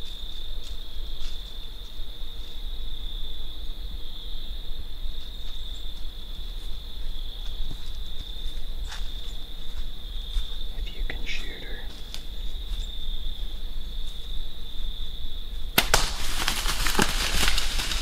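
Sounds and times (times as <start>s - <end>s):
high-pitched insect trill: 0.0s - 15.7s.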